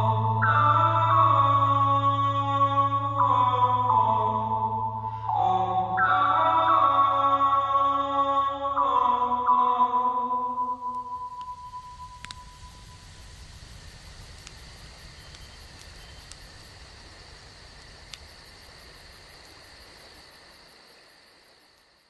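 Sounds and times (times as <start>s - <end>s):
background music: 0.0s - 13.2s
rapid high-pitched chirping: 10.8s - 13.9s
low wind rumble: 10.8s - 20.0s
faint clicks: 10.9s - 16.9s, 17.7s - 19.5s.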